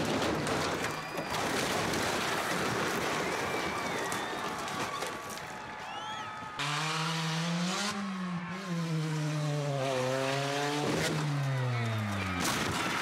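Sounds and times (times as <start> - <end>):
car engine at full throttle: 6.6 - 13.0.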